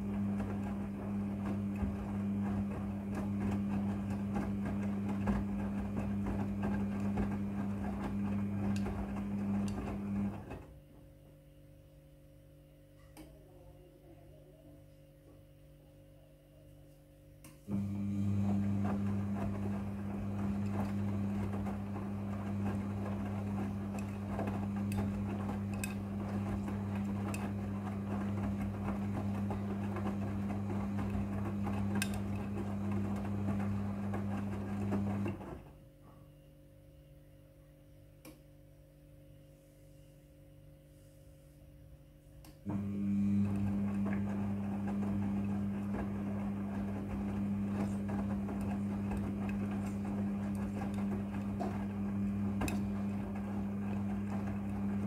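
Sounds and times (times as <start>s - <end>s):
laundry tumbling: 0.0s - 10.8s, 18.2s - 35.7s, 42.7s - 55.0s
motor hum: 0.0s - 10.8s, 17.7s - 35.8s, 42.5s - 55.0s
washing machine drum turning: 0.0s - 10.8s, 17.7s - 35.7s, 42.7s - 55.0s.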